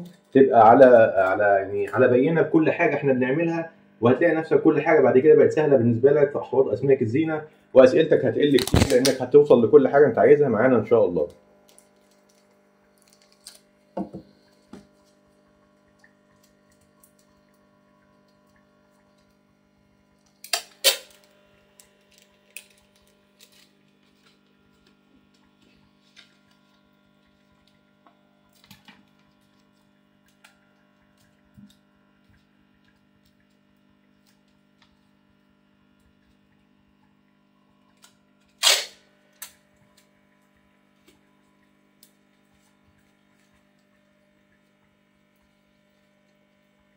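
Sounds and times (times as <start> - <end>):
low electrical hum: 0.0 - 46.9
plastic sheet crackling: 8.4 - 9.3, 20.3 - 27.1
tape ripping off roll: 8.5 - 9.3, 20.4 - 22.8, 38.5 - 39.6.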